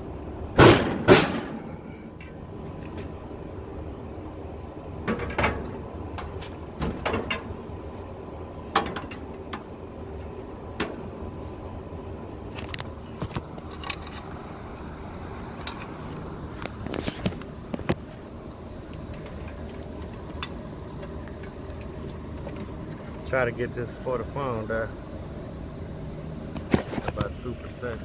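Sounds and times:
steady low hum: 0.0s - 28.0s
tools clicking and knocking: 12.7s - 14.3s.

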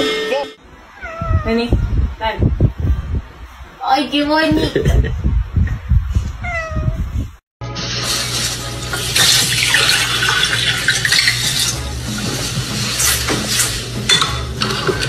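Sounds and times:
cat meowing: 0.8s - 1.6s, 6.4s - 7.0s
tap water running into glass: 8.8s - 11.8s.

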